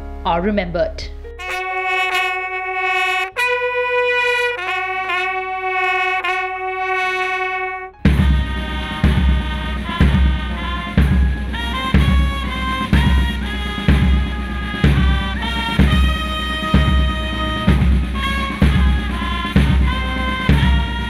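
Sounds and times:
brass band music: 1.3s - 21.0s
military bugle call: 1.4s - 21.0s
drum beating: 8.0s - 21.0s.

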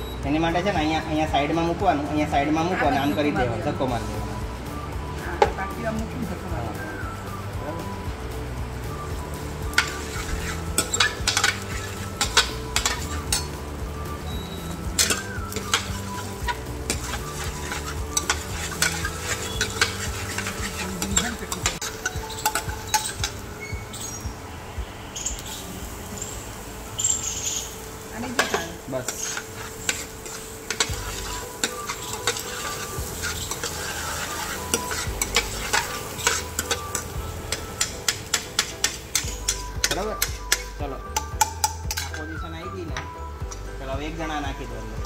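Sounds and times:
food sizzling in hot oil: 0.0s - 45.0s
metal ladle scraping a pan: 9.7s - 13.6s, 15.0s - 24.1s, 28.4s - 40.7s, 41.4s - 42.2s.

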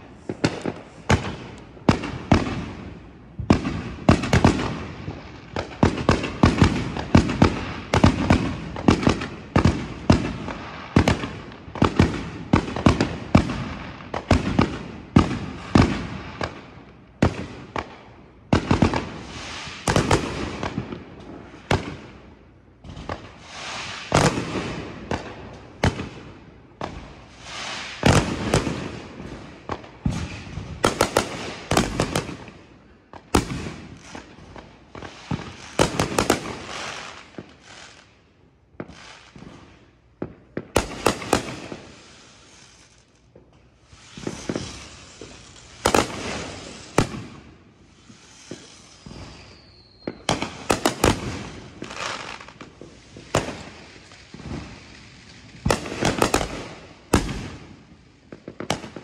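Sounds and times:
fireworks bangs: 0.0s - 38.1s, 38.8s - 59.0s
fireworks crackling: 0.0s - 59.0s
falling whistle: 49.0s - 50.2s.

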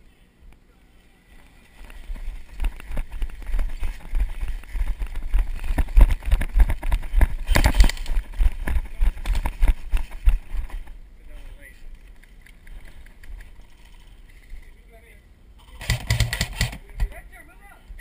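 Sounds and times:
running footsteps on grass: 1.8s - 11.0s.

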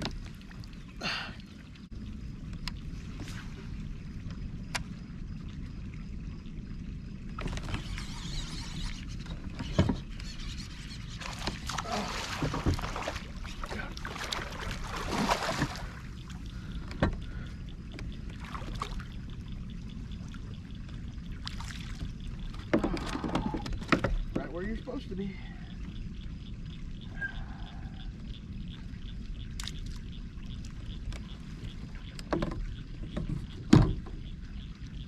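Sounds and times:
steady low rumble: 0.0s - 7.8s, 10.1s - 35.0s
fish splashing in water: 7.4s - 17.4s.

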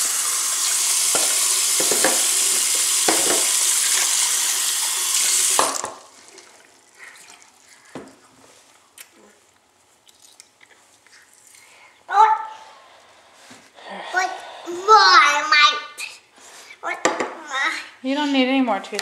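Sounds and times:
faucet running: 0.0s - 7.7s.

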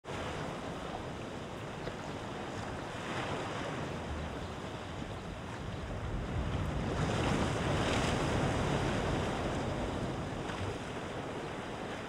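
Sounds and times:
sea waves crashing on rocks: 0.1s - 12.0s.

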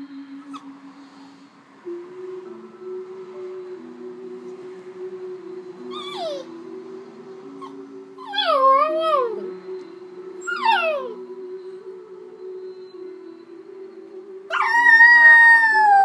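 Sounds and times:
quiet music from television: 0.0s - 16.0s
small dog howling: 10.4s - 11.2s, 14.5s - 16.0s.

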